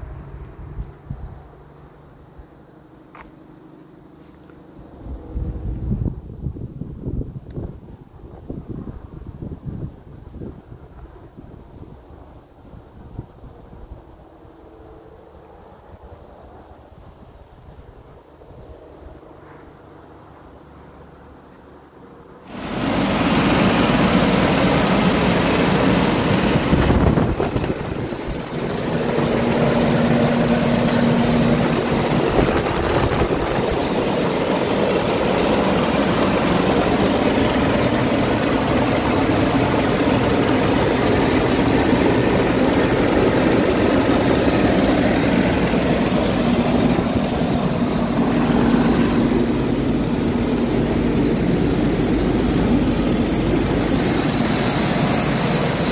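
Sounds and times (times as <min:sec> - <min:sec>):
high whine: 0:19.4 - 0:55.9.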